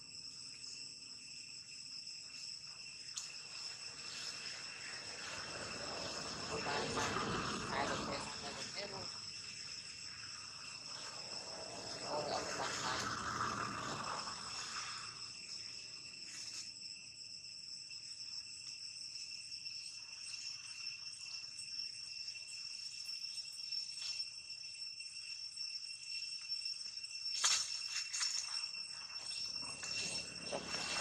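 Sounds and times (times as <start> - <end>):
insects buzzing: 0.0 - 31.0.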